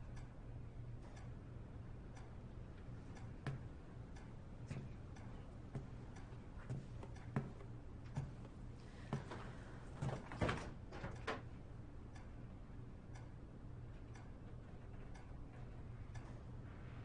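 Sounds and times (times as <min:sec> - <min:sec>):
clock ticking: 0:14.1 - 0:16.4.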